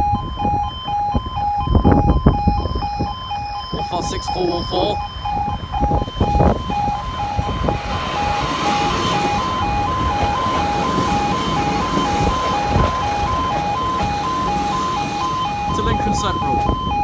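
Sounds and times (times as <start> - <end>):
two-tone level crossing alarm: 0.0 - 17.0
diesel train passing: 3.7 - 17.0.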